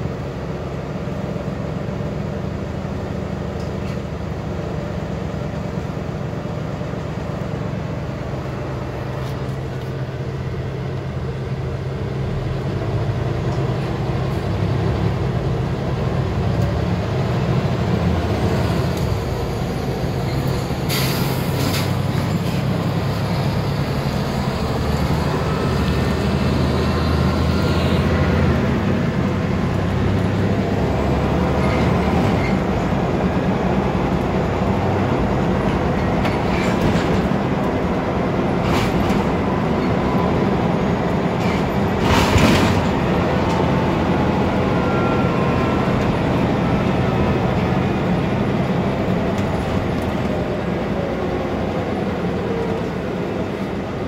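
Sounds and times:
bus diesel engine working hard: 0:00.0 - 0:54.0
bus body rattles: 0:35.3 - 0:44.6.

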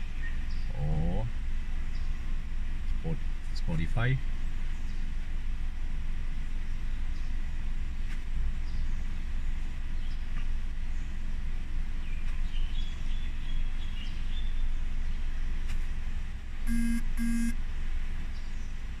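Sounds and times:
short beeps: 0:16.7 - 0:17.6.

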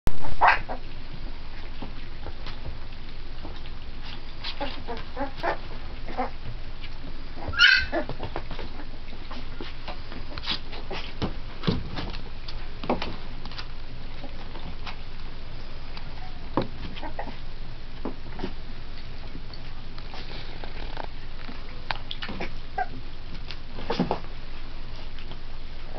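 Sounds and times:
puppies squeaking: 0:04.4 - 0:06.5, 0:07.4 - 0:11.2, 0:16.1 - 0:17.5, 0:22.0 - 0:23.0
puppy high-pitched squeal: 0:07.4 - 0:08.2.

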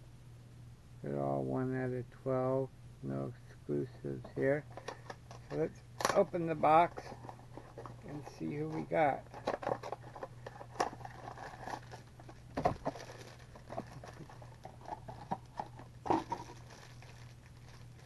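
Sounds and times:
foil bag crinkling: 0:04.7 - 0:18.0.

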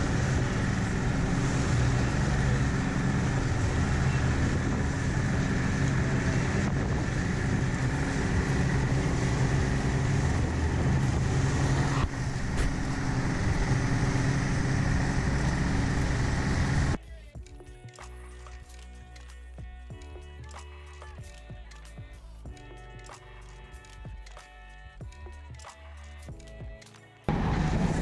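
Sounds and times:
outboard motors running: 0:00.0 - 0:17.0
water rushing in boat wake: 0:00.0 - 0:17.0.

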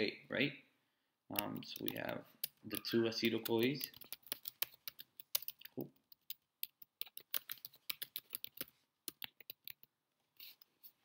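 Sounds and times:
keyboard typing: 0:01.4 - 0:10.7.

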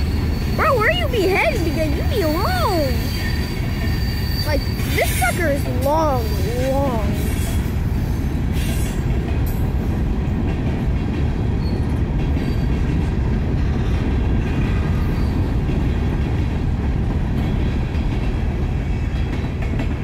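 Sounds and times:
faint wheel squeals: 0:00.0 - 0:07.7, 0:11.6 - 0:12.8
train wheels rumbling on rail: 0:00.0 - 0:20.0.

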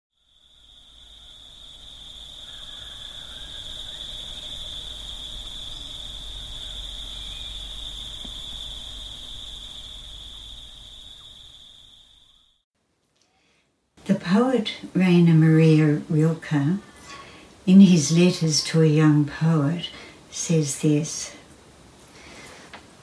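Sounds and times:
insects trilling: 0:00.1 - 0:12.6.

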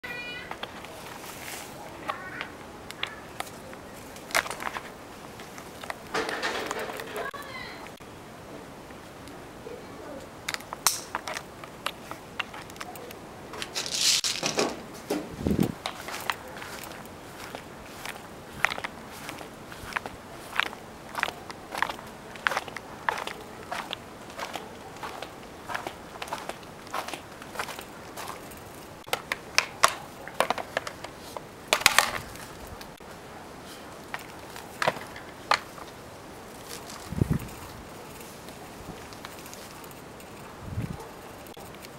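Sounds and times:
plastic and metal clicks: 0:29.0 - 0:32.2.

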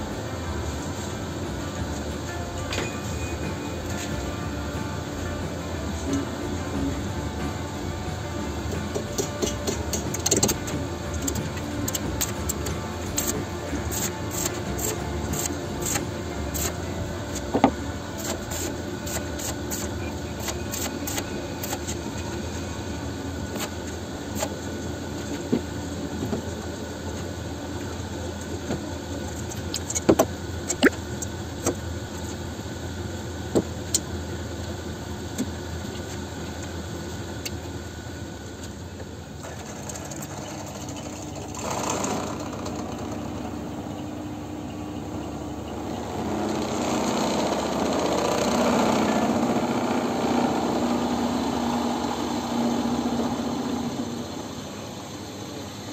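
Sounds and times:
drill press running: 0:00.0 - 0:29.0, 0:39.1 - 0:55.9
machine hum: 0:00.0 - 0:55.9
arc welding crackle: 0:09.2 - 0:17.5, 0:18.2 - 0:22.0.

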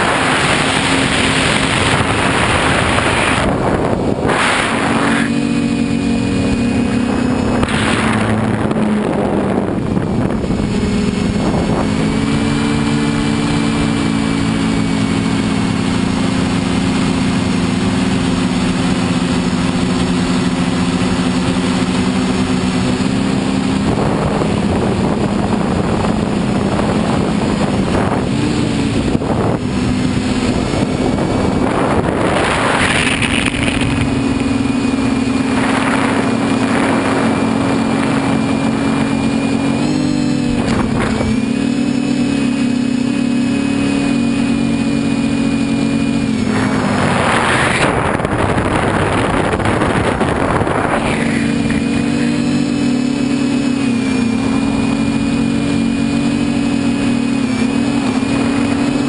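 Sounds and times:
air rushing over microphone: 0:00.0 - 0:12.2, 0:23.9 - 0:39.7, 0:46.2 - 0:52.4
quadcopter motors whirring: 0:00.0 - 0:59.0.

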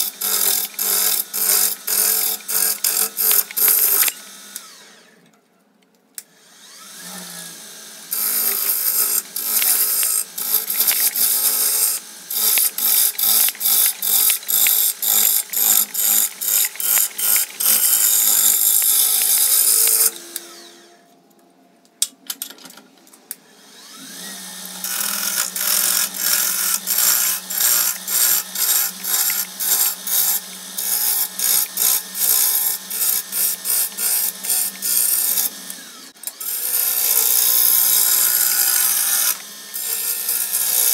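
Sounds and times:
lathe tool cutting wood: 0:00.0 - 0:05.2, 0:06.4 - 0:21.0, 0:23.5 - 0:40.9
lathe motor humming: 0:06.5 - 0:20.9.

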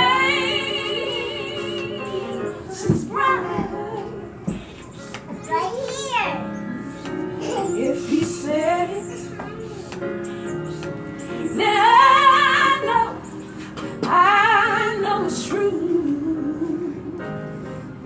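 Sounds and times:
woman singing with vibrato: 0:00.0 - 0:04.4, 0:07.5 - 0:09.4, 0:11.2 - 0:17.2.

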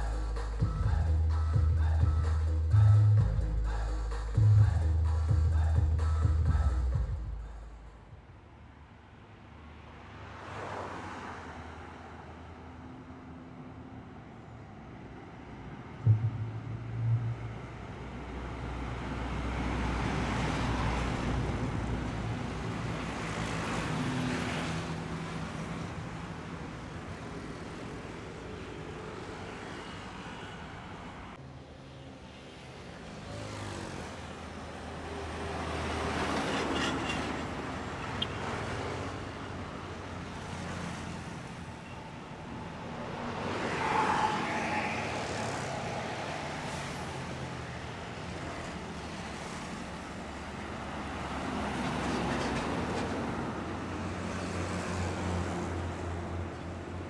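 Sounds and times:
diesel trucks passing: 0:00.0 - 0:57.0
low engine drone: 0:16.0 - 0:19.0.

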